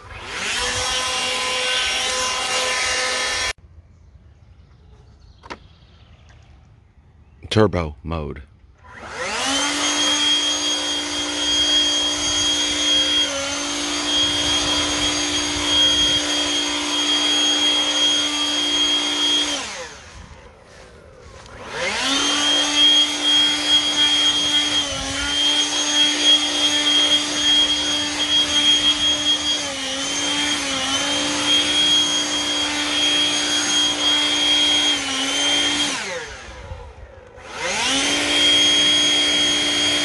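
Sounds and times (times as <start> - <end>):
leaf blower whine and rushing air: 0.0 - 3.6, 8.8 - 40.0.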